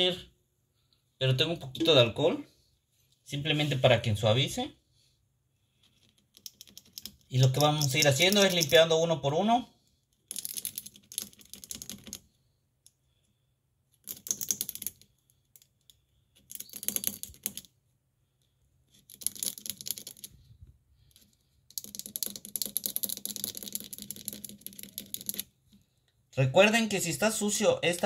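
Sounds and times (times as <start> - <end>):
pick scratching metal contacts: 6.4 - 8.9.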